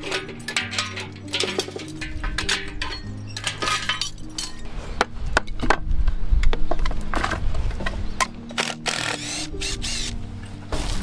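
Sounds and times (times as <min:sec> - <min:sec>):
metallic clinks and knocks: 0:00.0 - 0:04.7
background music: 0:00.0 - 0:11.0.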